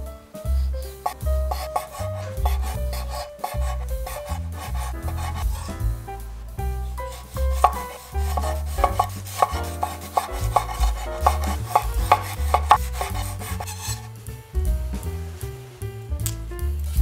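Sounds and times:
background music: 0:00.0 - 0:17.0
knife slicing on wooden board: 0:01.1 - 0:05.8, 0:07.0 - 0:14.1.

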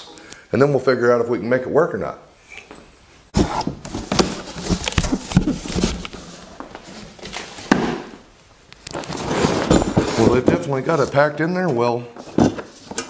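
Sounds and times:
cardboard scraping and rustling: 0:03.3 - 0:08.1, 0:09.0 - 0:11.2.

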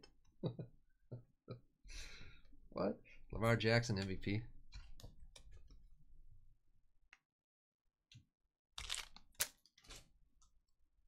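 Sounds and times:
cards rustling: 0:08.8 - 0:10.1.

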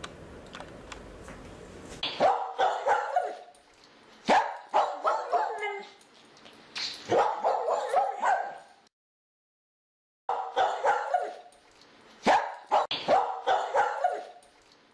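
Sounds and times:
dog barking: 0:02.1 - 0:03.5, 0:04.3 - 0:06.0, 0:07.1 - 0:08.8, 0:10.3 - 0:11.5, 0:12.2 - 0:14.4.

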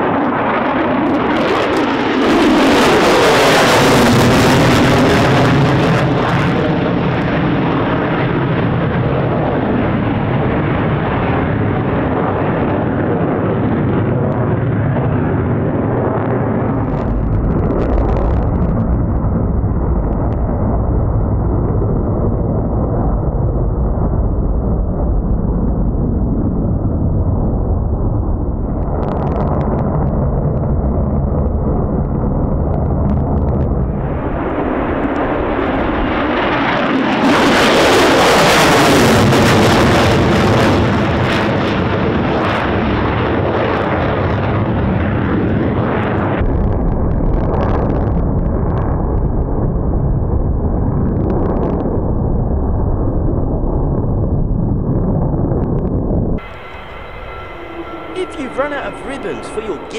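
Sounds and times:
jet engine passing overhead: 0:00.0 - 0:32.6, 0:33.6 - 0:46.4, 0:56.4 - 0:59.9
deep low rumble: 0:09.6 - 0:36.5.

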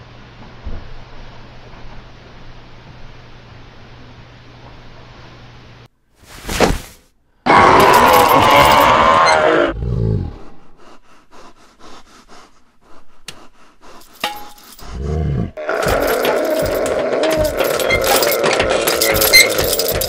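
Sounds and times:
person screaming: 0:07.5 - 0:09.8, 0:15.6 - 0:20.0.

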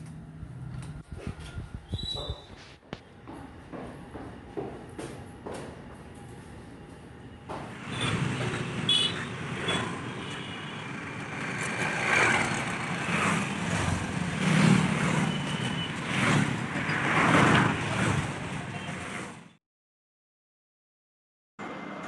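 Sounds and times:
cars passing: 0:07.5 - 0:19.5
motorbikes passing: 0:07.7 - 0:19.4.

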